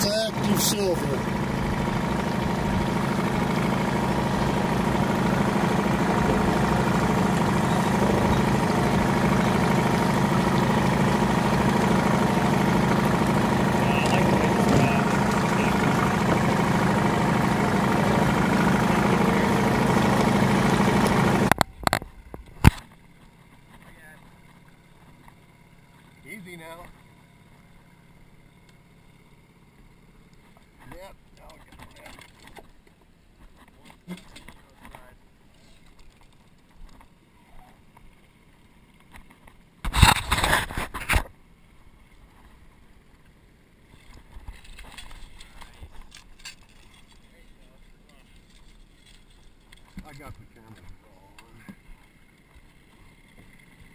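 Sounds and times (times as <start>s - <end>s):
rushing water: 0.0s - 21.6s
outboard motor running: 0.0s - 53.9s.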